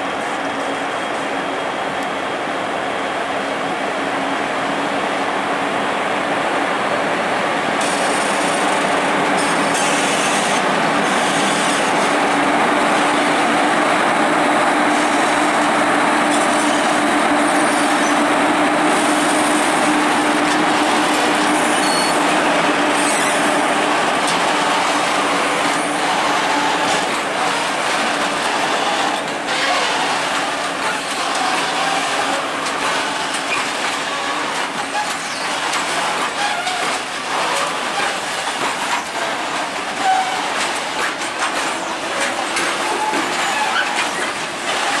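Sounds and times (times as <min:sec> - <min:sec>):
locomotive hum: 0:00.0 - 0:45.0
train wheels rumbling on rail: 0:00.0 - 0:45.0
high wheel squeals: 0:21.1 - 0:23.6, 0:33.5 - 0:35.6, 0:42.8 - 0:44.4.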